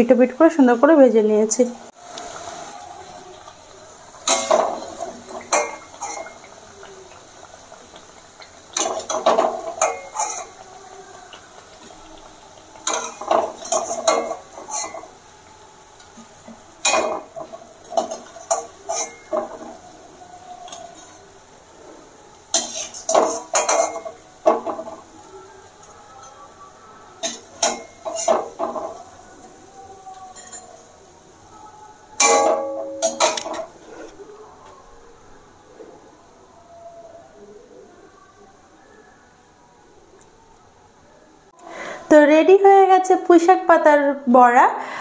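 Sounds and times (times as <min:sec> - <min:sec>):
metal spoon scraping metal pan: 0:08.8 - 0:10.6, 0:12.8 - 0:15.1, 0:16.8 - 0:19.8, 0:22.5 - 0:24.8, 0:27.2 - 0:28.9.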